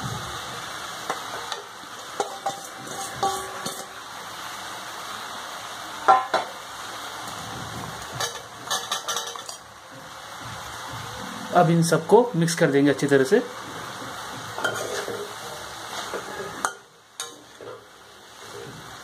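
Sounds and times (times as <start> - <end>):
frying sizzle: 0.0 - 19.0
potato pieces clattering into pan: 1.0 - 4.0, 8.1 - 9.7
ladle scraping metal pan: 1.3 - 4.0, 8.2 - 9.6, 14.6 - 17.8.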